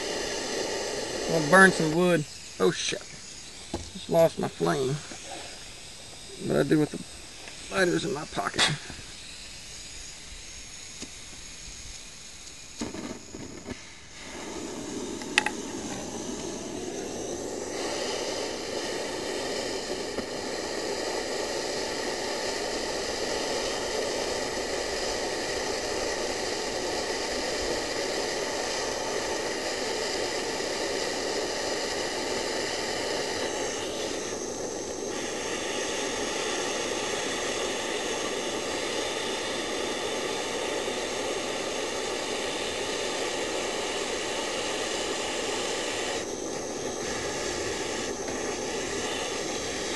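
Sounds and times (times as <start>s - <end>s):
gas torch hissing: 0.0s - 49.9s
gas torch igniter click: 10.9s - 49.9s.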